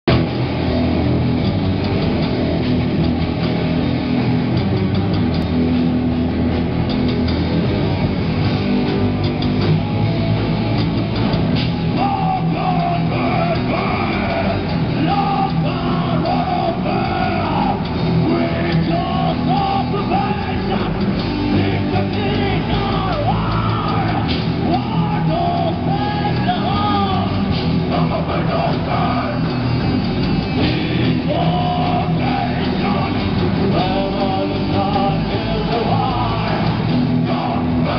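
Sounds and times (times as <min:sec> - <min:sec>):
live rock band playing: 0:00.1 - 0:37.9
person singing: 0:11.9 - 0:29.6, 0:30.6 - 0:37.9.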